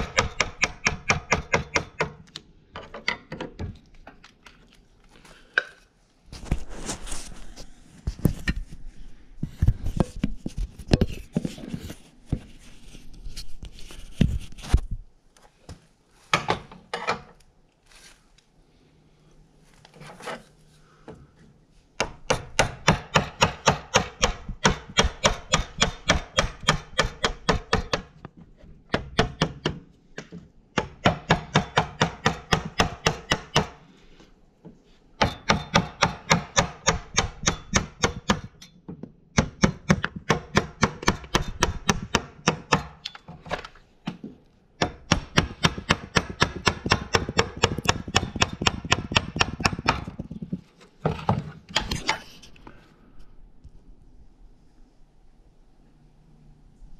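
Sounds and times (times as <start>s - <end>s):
rapid chopping on wood: 0.0s - 2.2s, 22.0s - 28.1s, 30.8s - 33.8s, 35.2s - 38.6s, 39.4s - 43.0s, 44.8s - 50.3s.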